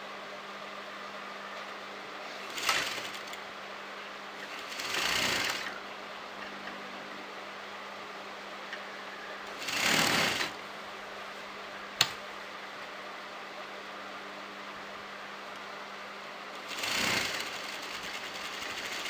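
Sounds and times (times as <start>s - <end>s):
sewing machine stitching: 2.4s - 3.4s, 4.4s - 5.8s, 9.6s - 10.6s, 16.6s - 19.0s.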